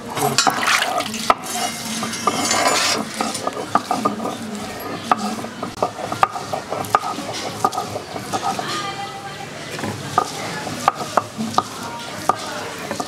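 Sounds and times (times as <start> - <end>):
stone roller clacking: 0.1 - 8.8, 9.8 - 11.7
stone-on-stone scraping: 0.2 - 8.9.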